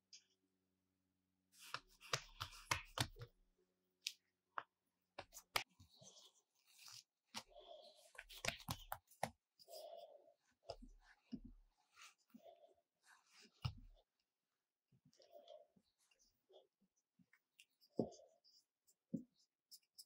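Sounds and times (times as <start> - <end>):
hands patting dough: 1.6 - 3.4, 4.0 - 5.8, 8.1 - 9.4.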